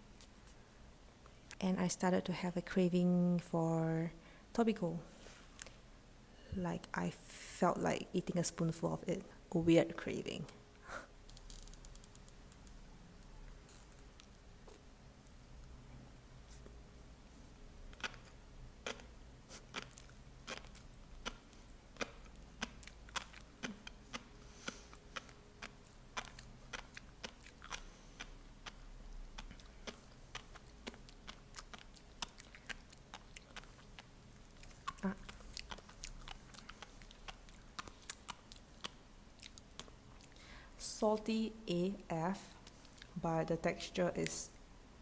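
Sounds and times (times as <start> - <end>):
fish roe popping while chewed: 17.9 - 40.3.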